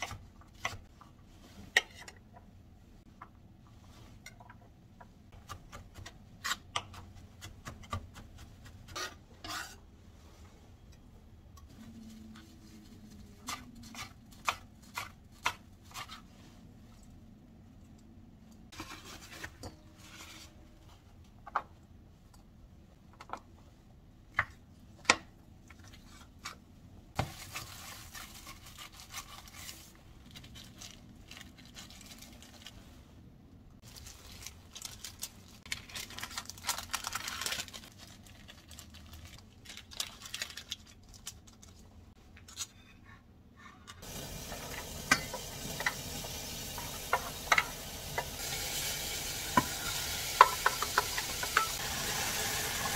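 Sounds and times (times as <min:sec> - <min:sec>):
parchment paper crinkling: 0:33.8 - 0:41.9.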